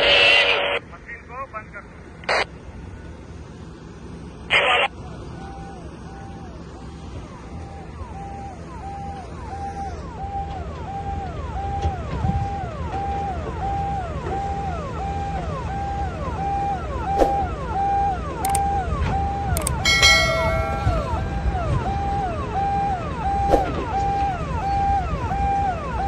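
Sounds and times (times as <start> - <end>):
heavy engines rumbling: 0.1 - 26.0
vehicle siren wailing: 5.4 - 26.0
sharp clicks: 18.4 - 18.7, 19.6 - 19.8
bell-like chime: 19.6 - 21.6.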